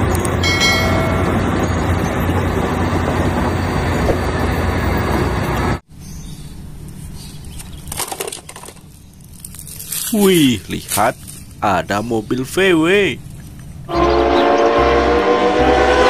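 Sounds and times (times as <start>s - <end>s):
bulldozer diesel engine rumbling: 0.0s - 5.8s.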